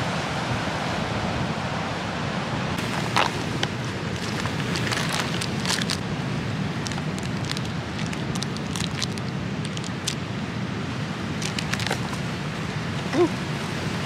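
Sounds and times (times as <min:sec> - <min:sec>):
plastic wrapper crinkling: 0:02.8 - 0:06.0, 0:06.7 - 0:10.2, 0:11.4 - 0:12.2.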